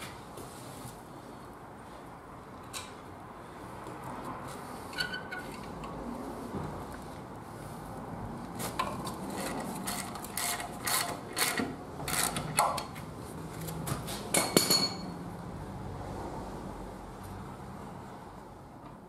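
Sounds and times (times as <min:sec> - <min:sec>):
wrench and wheel nuts clinking: 0:04.9 - 0:05.9, 0:08.8 - 0:13.0, 0:14.3 - 0:15.1.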